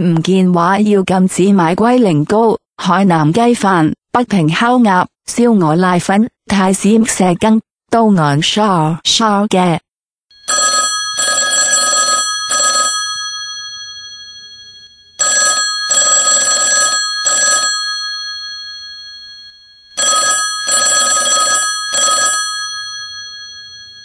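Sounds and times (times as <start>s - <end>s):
telephone bell ringing: 10.4s - 24.0s.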